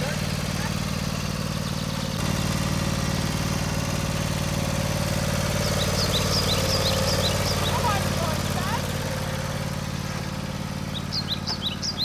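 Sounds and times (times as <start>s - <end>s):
lawn tractor engine running: 0.0s - 12.0s.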